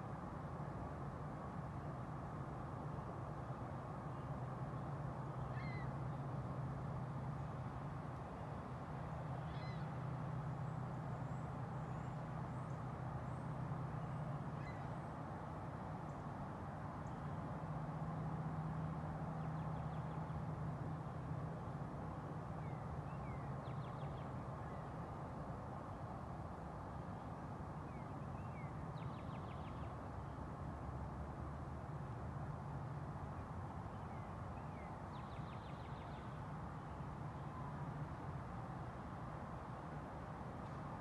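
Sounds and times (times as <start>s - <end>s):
bird trills: 5.5s - 5.9s
faint bird chirps: 5.5s - 5.9s, 9.4s - 10.0s.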